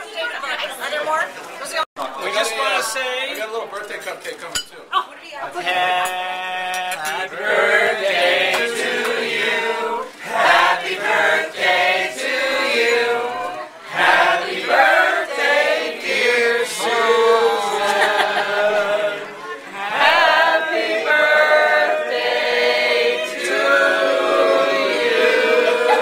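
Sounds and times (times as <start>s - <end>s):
group of people singing: 5.6s - 26.0s.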